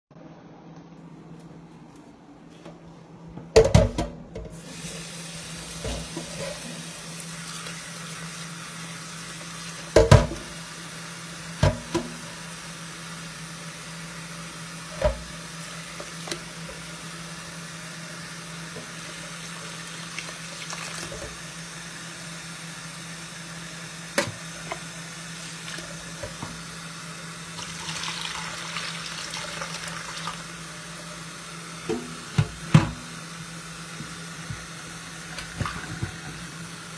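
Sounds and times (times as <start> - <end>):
tap water running into pot: 4.5 - 12.5, 14.9 - 17.5, 18.6 - 21.6, 24.1 - 33.2, 33.8 - 36.9.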